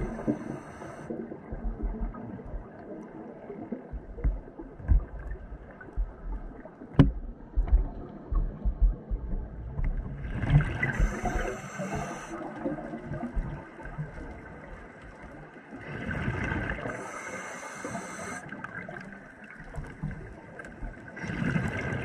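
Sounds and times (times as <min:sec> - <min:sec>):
diver breathing through regulator: 0:00.0 - 0:01.2, 0:10.8 - 0:12.4, 0:16.8 - 0:18.4
gurgling exhaled bubbles: 0:21.2 - 0:22.0.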